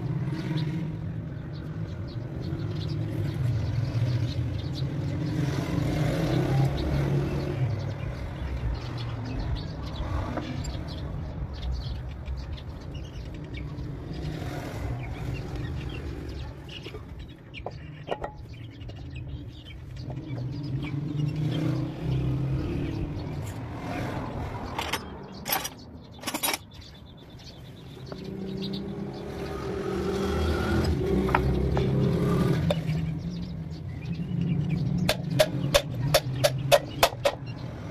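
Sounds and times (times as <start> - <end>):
metal parts clinking: 24.8 - 26.7.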